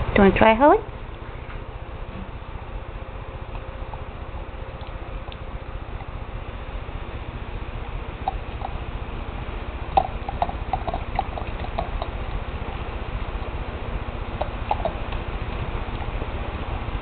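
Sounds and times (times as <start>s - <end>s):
low steady hum: 0.0s - 17.0s
dog lapping: 9.9s - 12.3s, 14.4s - 16.1s.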